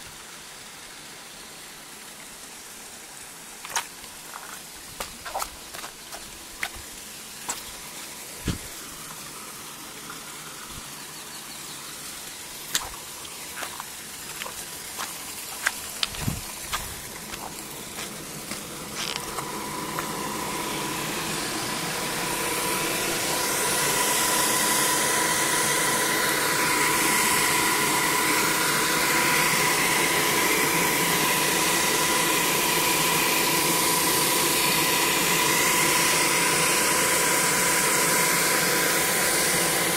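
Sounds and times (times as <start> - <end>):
rushing water hiss: 0.0 - 39.9
turbine and generator whine: 0.0 - 39.9
footsteps on stony path: 3.6 - 8.8, 12.7 - 20.2.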